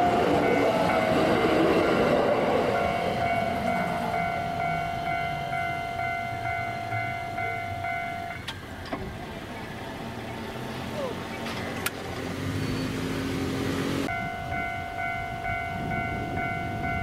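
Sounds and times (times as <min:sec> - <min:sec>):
level crossing alarm ringing: 0:00.0 - 0:08.8, 0:14.1 - 0:17.0
electric train rumble: 0:00.0 - 0:12.4, 0:13.5 - 0:17.0.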